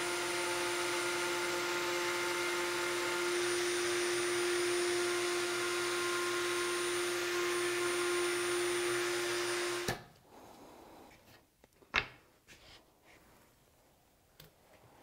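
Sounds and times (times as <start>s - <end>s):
router whining: 0.0s - 10.1s.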